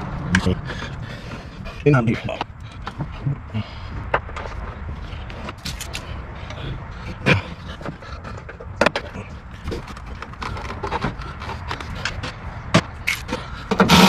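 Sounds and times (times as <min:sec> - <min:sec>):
hand tools clicking and knocking: 0:07.2 - 0:14.0
loud noisy rasp: 0:13.7 - 0:14.0.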